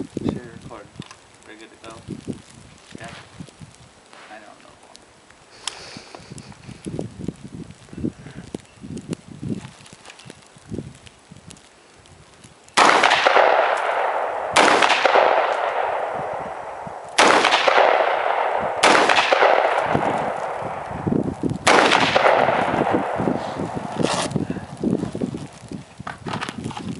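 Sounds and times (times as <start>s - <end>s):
rifle shots with echo: 12.8s - 21.0s, 21.6s - 24.3s.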